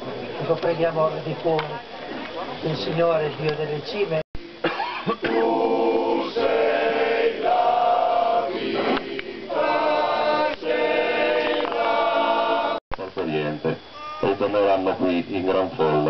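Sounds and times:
choir singing a hymn: 5.1 - 12.8.

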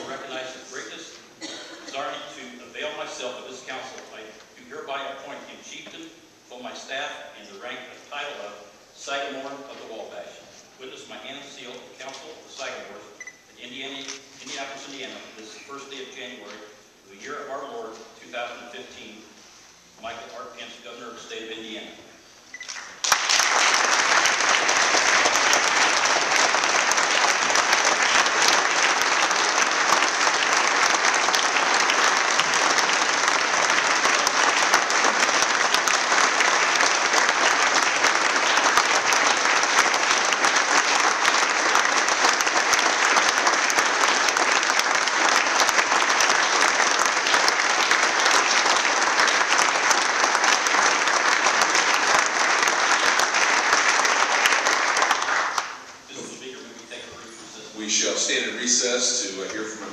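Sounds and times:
crowd applauding: 22.6 - 55.9.

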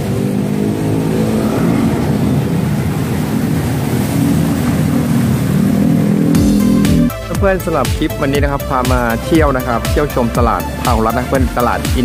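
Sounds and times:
street traffic: 0.0 - 7.2
vehicle engine running: 0.0 - 12.0.

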